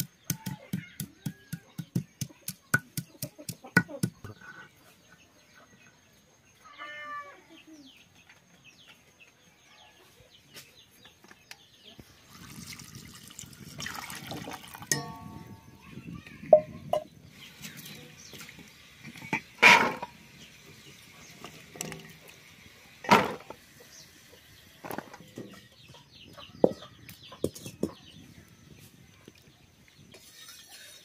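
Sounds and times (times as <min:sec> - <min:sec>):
water sloshing in steel bowl: 0:12.3 - 0:15.6.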